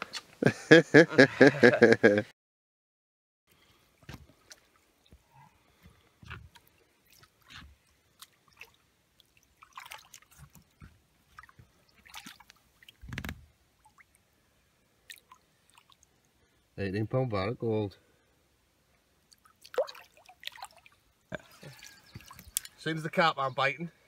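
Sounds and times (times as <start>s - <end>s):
water splashing and dripping: 4.0s - 14.2s, 15.0s - 16.4s, 18.9s - 22.9s.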